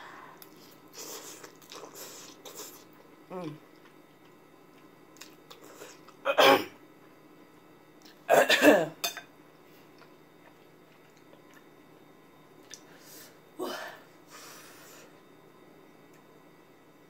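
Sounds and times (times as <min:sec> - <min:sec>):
person coughing: 0:06.3 - 0:06.8, 0:08.3 - 0:09.0.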